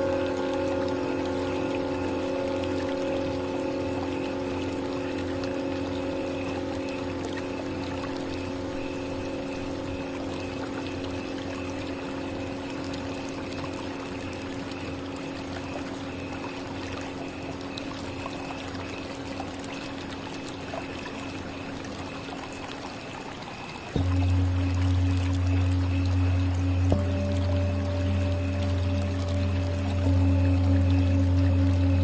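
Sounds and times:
deep bowl tones: 0.0s - 11.3s, 24.0s - 32.0s
singing bowls ringing: 0.0s - 18.6s, 23.9s - 32.0s.

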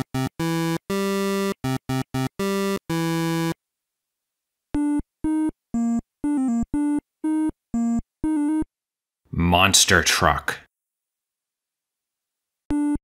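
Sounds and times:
chiptune synthesizer jingle: 0.0s - 3.6s.

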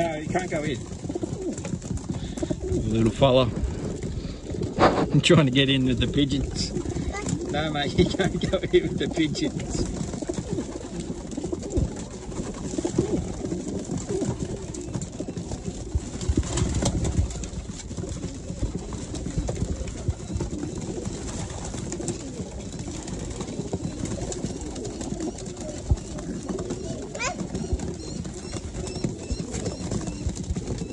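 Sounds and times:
pigeons cooing: 0.0s - 30.9s
pigeons pecking taps: 0.0s - 30.9s.

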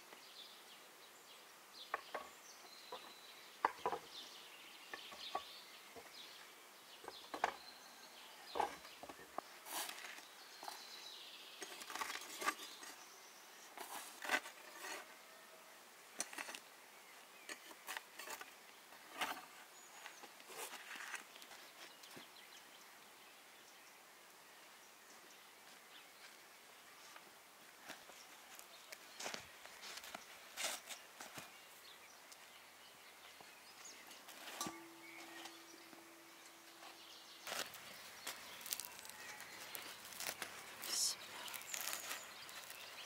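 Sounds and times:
dishes and cutlery clinking: 34.4s - 36.6s.

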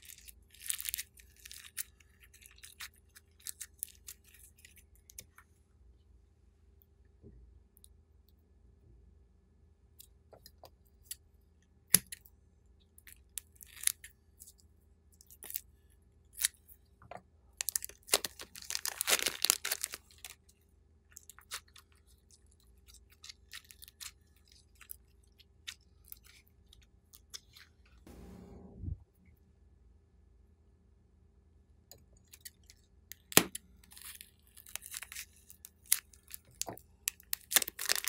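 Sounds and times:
foam beads crackling in slime: 0.0s - 4.8s, 17.6s - 20.4s, 33.8s - 38.0s
plastic piping bag crinkling: 0.0s - 5.2s, 17.6s - 20.5s, 33.2s - 38.0s.

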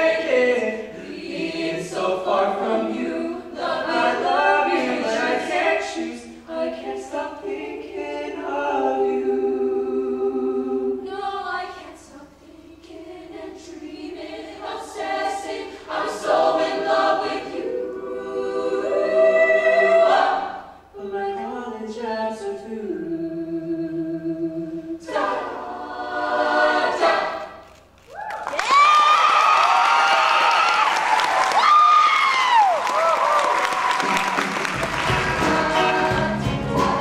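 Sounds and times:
choir singing unaccompanied: 0.0s - 27.6s, 34.0s - 37.0s.

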